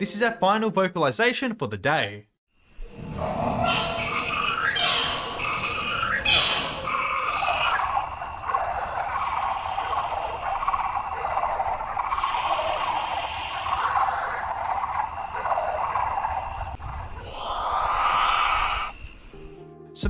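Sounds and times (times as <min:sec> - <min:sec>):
high chirping pips: 0:02.7 - 0:19.4
rasping hiss: 0:16.8 - 0:19.4.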